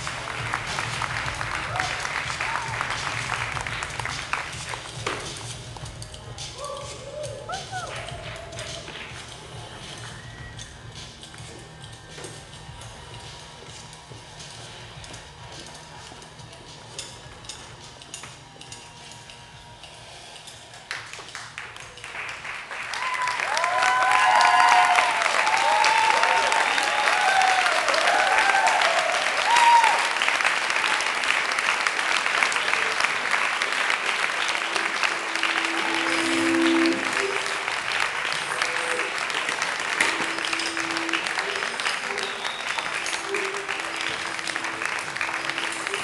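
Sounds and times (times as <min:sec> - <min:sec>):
audience clapping: 0:00.0 - 0:06.6, 0:07.4 - 0:10.2, 0:20.9 - 0:46.0
whoops and cheering voices: 0:01.6 - 0:02.9, 0:06.6 - 0:09.0, 0:22.9 - 0:30.2.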